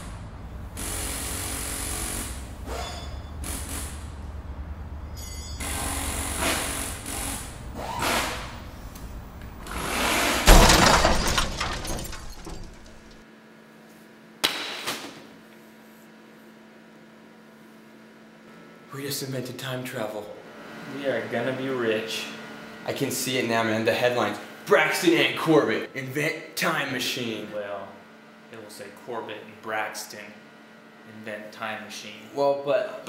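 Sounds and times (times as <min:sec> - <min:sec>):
mechanical whirring and clattering: 0:08.3 - 0:13.2
loud crash: 0:09.7 - 0:13.2.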